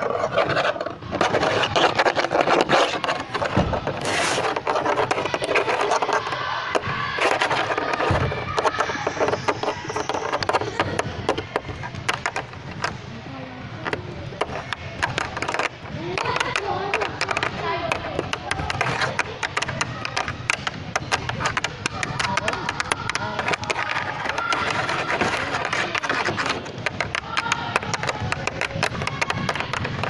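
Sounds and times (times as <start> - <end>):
dull thumps: 0.4 - 13.1, 13.8 - 30.0
plastic bricks clattering and clicking: 13.8 - 30.0.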